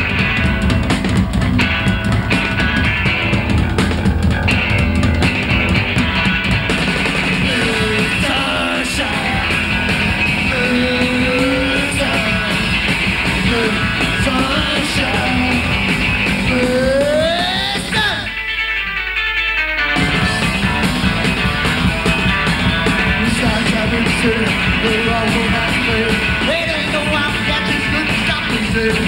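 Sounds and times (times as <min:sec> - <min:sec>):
electric guitar: 0:00.0 - 0:29.0
live rock band playing: 0:00.0 - 0:29.0
person singing: 0:07.4 - 0:18.4, 0:23.0 - 0:29.0.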